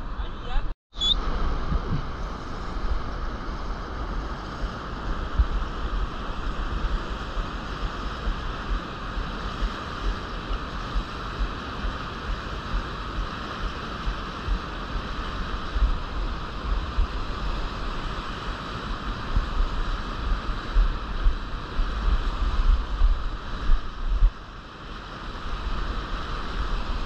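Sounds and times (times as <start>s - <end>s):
wind buffeting microphone: 1.2s - 24.8s
rushing river rapids: 1.3s - 27.0s.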